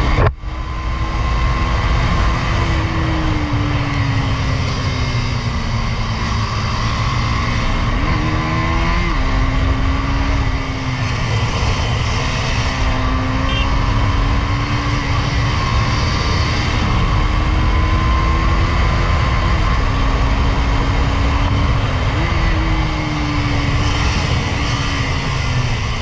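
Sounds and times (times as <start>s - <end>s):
motorcycle engine running hard: 0.0s - 26.0s
wind rush on microphone: 0.0s - 26.0s.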